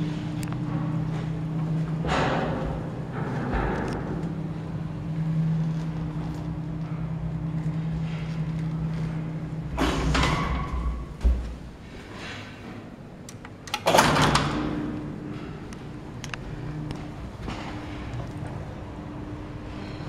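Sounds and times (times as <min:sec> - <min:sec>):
elevator clunk: 0:00.0 - 0:05.0, 0:09.6 - 0:18.6
elevator hum: 0:00.0 - 0:20.0.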